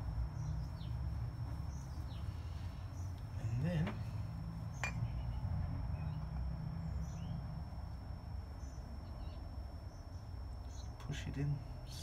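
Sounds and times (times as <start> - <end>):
low outdoor rumble: 0.0 - 12.0
faint bird chirps: 0.3 - 7.6, 8.4 - 12.0.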